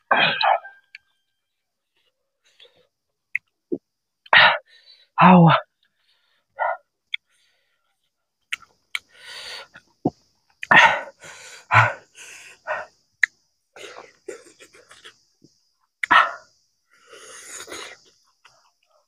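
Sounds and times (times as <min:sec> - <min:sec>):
cough-like exhalations: 0:00.0 - 0:00.7
lip smacks and clicks: 0:08.5 - 0:09.1, 0:13.2 - 0:13.4
hissing breaths: 0:09.0 - 0:13.1, 0:13.8 - 0:18.4.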